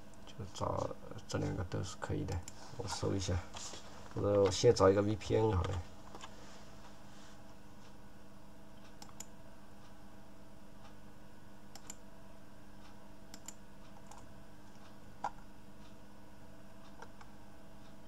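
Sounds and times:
faint steady hum: 0:00.0 - 0:18.0
keyboard and mouse clicks: 0:08.8 - 0:09.3, 0:11.7 - 0:12.0, 0:13.3 - 0:15.5, 0:16.9 - 0:17.3.

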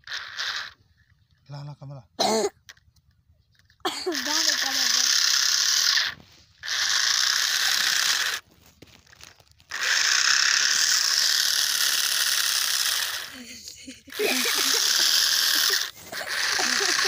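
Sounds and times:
toy electric motor grinding whir: 0:00.0 - 0:00.8, 0:04.1 - 0:13.5, 0:14.1 - 0:17.0.

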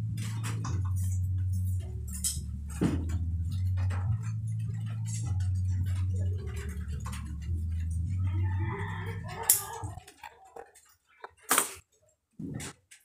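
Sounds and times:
low steady hum: 0:00.0 - 0:10.2.

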